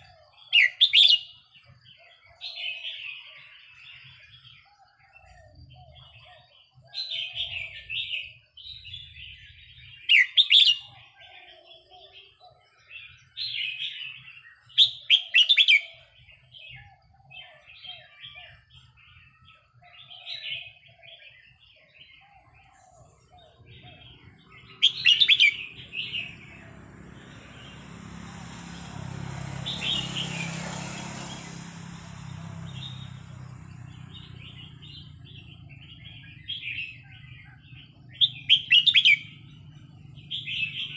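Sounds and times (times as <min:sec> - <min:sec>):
bird singing bubbly phrases: 0:20.1 - 0:28.0, 0:28.8 - 0:40.9
broad rushing noise: 0:24.8 - 0:36.0.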